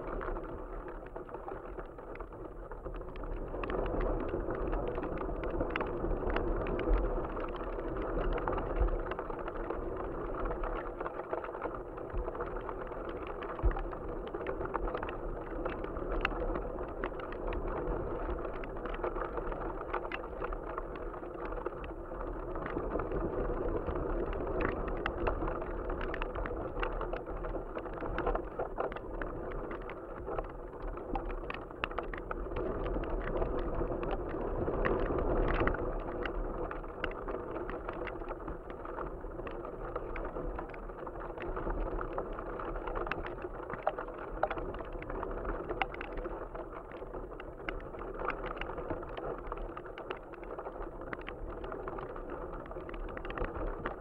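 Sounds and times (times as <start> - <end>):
kite fluttering and rattling: 0.0 - 54.0
wind rushing over camera: 0.0 - 54.0.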